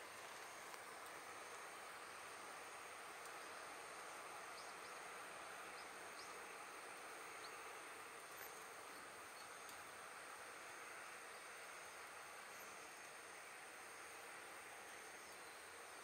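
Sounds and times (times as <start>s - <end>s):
wood fire hissing and crackling: 0.0s - 16.0s
insects chirping: 3.3s - 7.6s.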